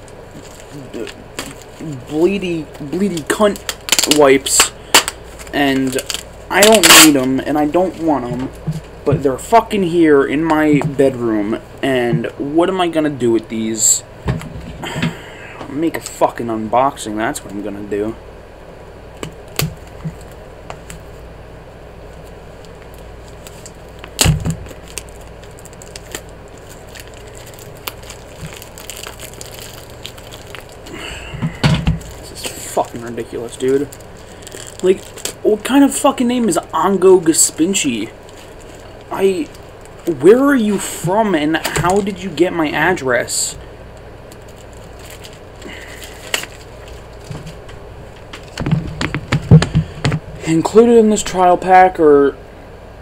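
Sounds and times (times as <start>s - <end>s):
low steady hum: 0.0s - 53.0s
package clicks and crackles: 3.1s - 7.1s, 22.6s - 30.9s, 33.6s - 35.4s, 44.3s - 47.5s
sharp crack: 3.2s - 5.2s, 5.8s - 7.3s, 24.0s - 25.1s.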